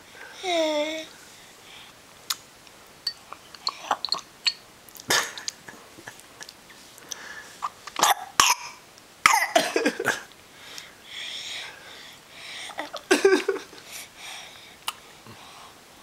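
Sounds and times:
clicks and lip smacks: 2.3s - 2.5s
baby coughing and spluttering: 8.0s - 10.3s.

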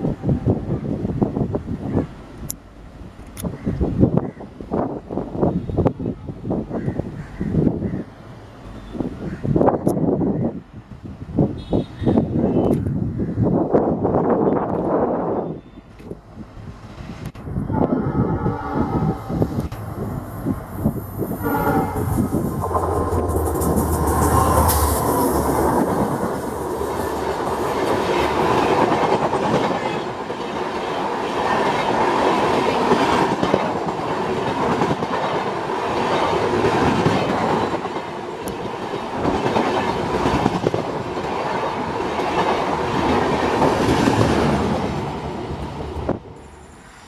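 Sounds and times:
diesel locomotive engine drone: 13.0s - 47.0s
train wheels clickety-clack: 21.9s - 44.9s.

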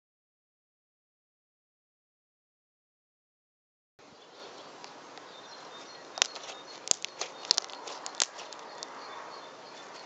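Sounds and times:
faint steady hiss: 4.0s - 10.0s.

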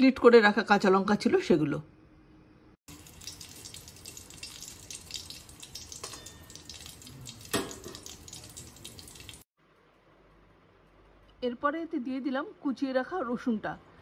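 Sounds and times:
oil sizzling and crackling in a wok: 2.9s - 9.5s.

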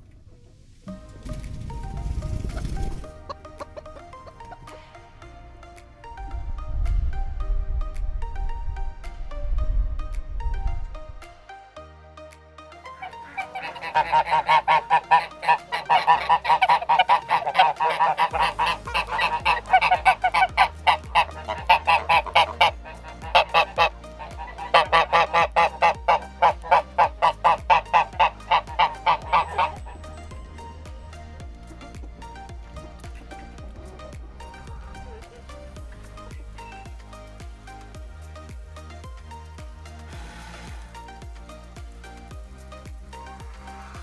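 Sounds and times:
geese honking: 2.5s - 5.2s, 12.8s - 31.4s.

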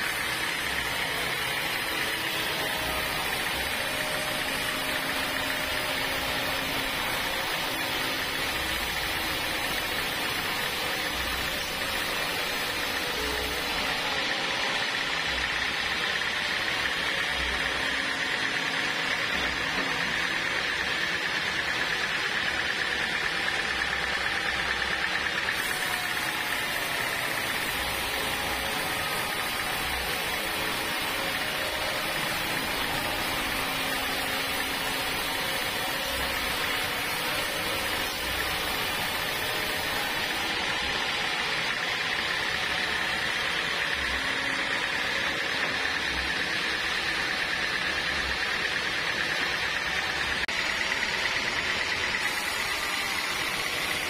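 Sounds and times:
band sawmill cutting timber: 0.0s - 54.0s.

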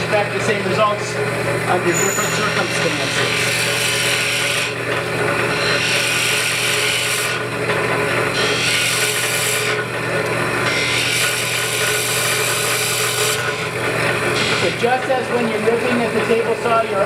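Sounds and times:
electric motor running: 0.0s - 17.0s
drill bit rasping into wood: 1.8s - 7.5s, 8.3s - 15.1s.

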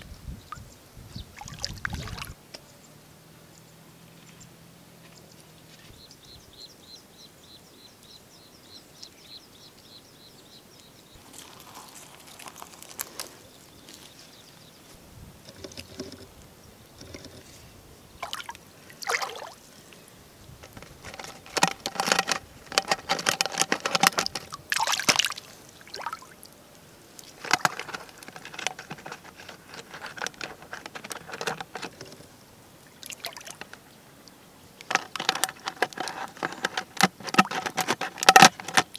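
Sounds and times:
hands splashing in shallow water: 18.2s - 19.6s, 24.4s - 26.4s.

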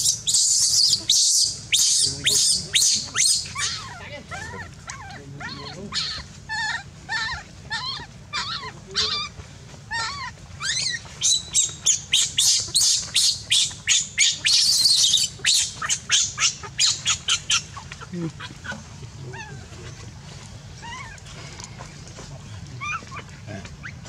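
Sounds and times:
baby monkey crying: 0.0s - 20.1s, 20.7s - 21.9s, 22.8s - 24.0s.

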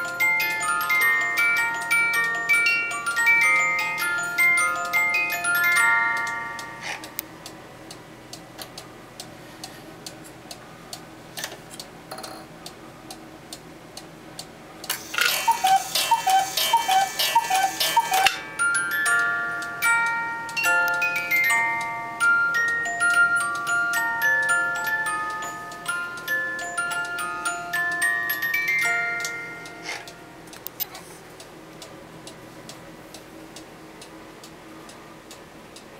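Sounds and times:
music box tinkling tune: 0.0s - 7.2s, 15.0s - 30.4s
clock ticking: 12.6s - 21.9s
clock striking mechanism clatter: 14.9s - 18.5s
cuckoo calls: 15.0s - 18.4s.

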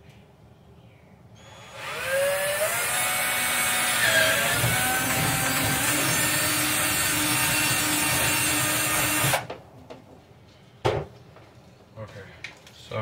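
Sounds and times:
electric drill boring: 1.4s - 9.5s.

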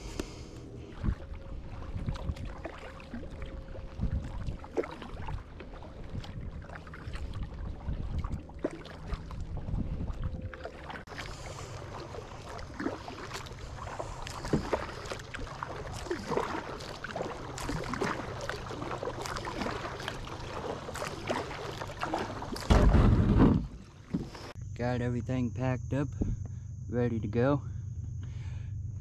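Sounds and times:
low steady rumble: 0.0s - 29.0s
paddle splashing: 0.7s - 24.6s.

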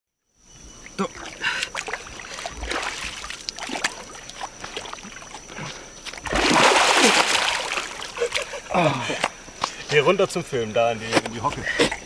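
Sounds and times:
water splashing and sloshing: 0.7s - 10.0s.

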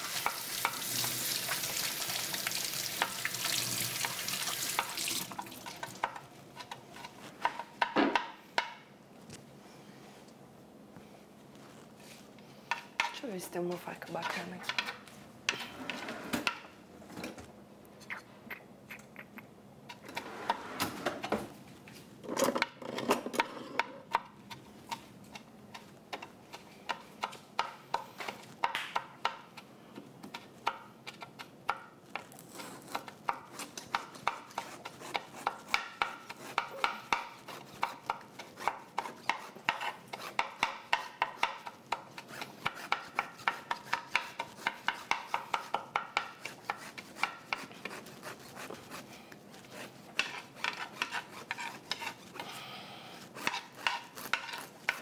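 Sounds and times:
kitchen knocks: 7.8s - 8.4s
knife sawing through watermelon rind: 34.4s - 40.4s, 46.4s - 52.5s, 53.3s - 55.0s.

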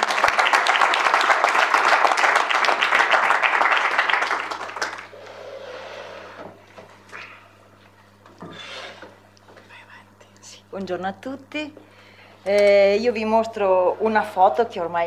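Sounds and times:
audience applauding: 0.0s - 5.2s
room noise: 0.0s - 15.0s.

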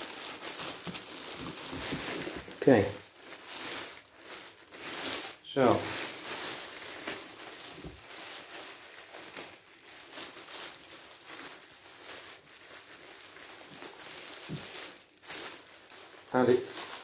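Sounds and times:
plastic bag crinkling: 0.0s - 17.0s.

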